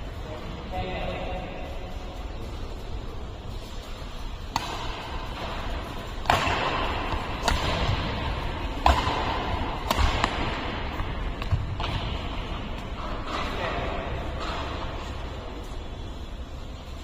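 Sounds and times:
rackets striking shuttlecock: 4.4s - 15.4s.

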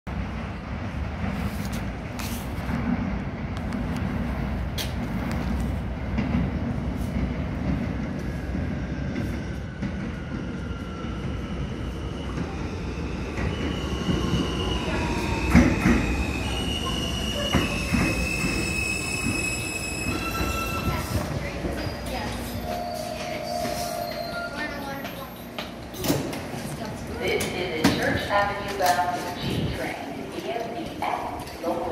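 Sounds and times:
subway train rumbling: 0.0s - 31.9s
high wheel squeal: 16.3s - 21.2s.

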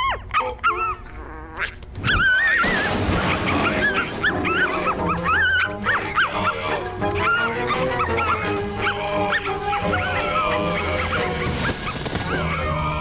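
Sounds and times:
cartoon puppy yipping and whimpering: 0.0s - 12.0s
metal trash can crash: 2.4s - 5.8s.

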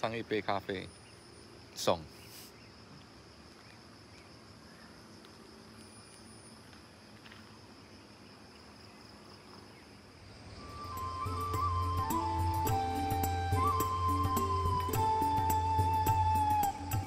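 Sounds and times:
insects chirring: 0.0s - 17.0s
low background hiss: 0.0s - 17.0s.

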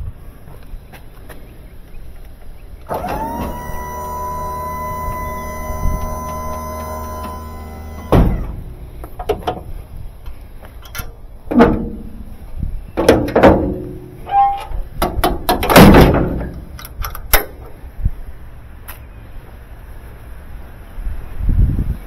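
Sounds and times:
scraping ringing squeals: 2.9s - 9.0s
metal clanks and thunks: 2.9s - 9.7s, 10.9s - 12.3s, 13.0s - 14.2s, 15.0s - 16.7s.

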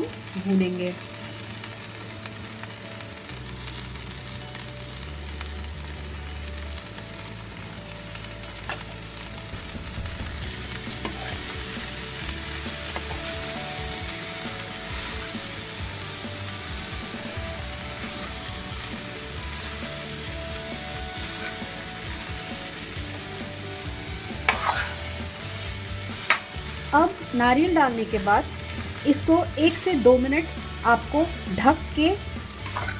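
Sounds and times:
vegetables sizzling in a pan: 0.0s - 32.9s
metal spoon stirring and scraping: 10.9s - 11.8s, 24.4s - 25.2s, 32.6s - 32.9s.

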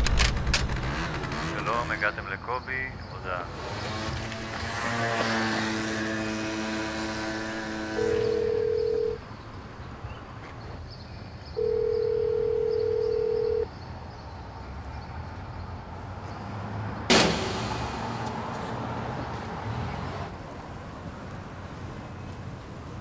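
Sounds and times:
telephone ringing tone beep: 8.0s - 9.2s, 11.6s - 13.7s
sudden loud hit: 17.1s - 18.3s.

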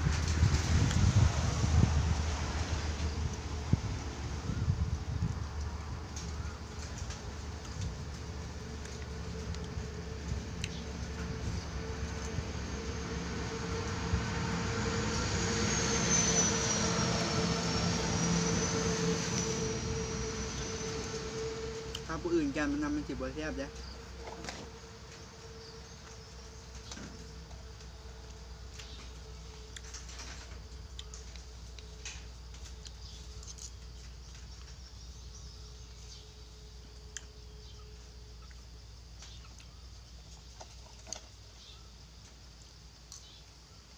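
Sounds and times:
low background hum: 0.0s - 43.9s
chewing: 30.9s - 32.0s.

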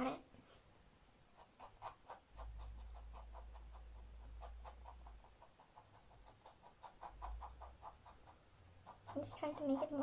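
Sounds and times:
pen nib scratching on paper: 1.3s - 10.0s.

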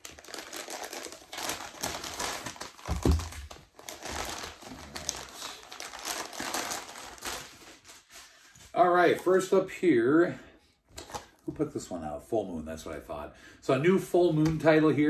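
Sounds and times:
paper mailer crinkling: 0.0s - 8.4s.

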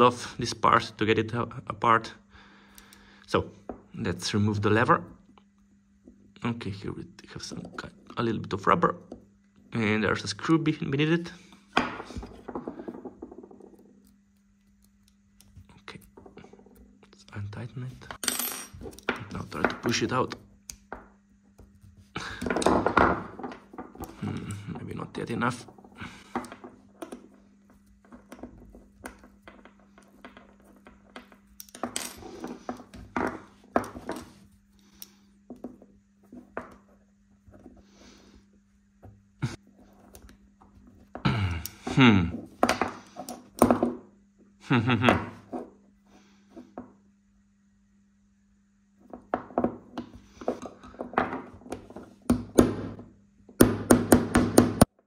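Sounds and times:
tools tapping and clicking: 18.1s - 24.8s, 25.7s - 34.4s.

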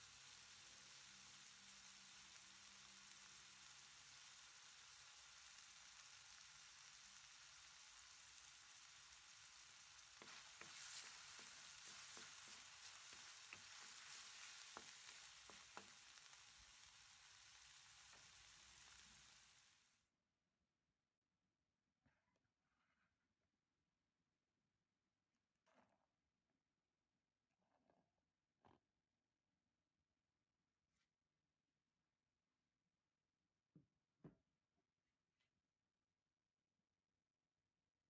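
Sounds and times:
vegetables sizzling in a wok: 0.0s - 20.0s
spatula scraping and tapping wok: 8.4s - 19.4s.

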